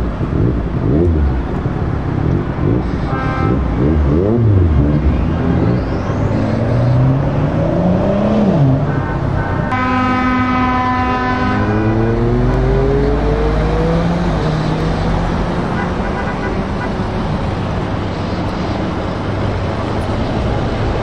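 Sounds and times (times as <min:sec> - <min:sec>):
engine revving: 0:00.0 - 0:16.0
truck diesel engines running: 0:00.0 - 0:21.0
truck air horn chord: 0:03.0 - 0:03.7, 0:09.7 - 0:12.0.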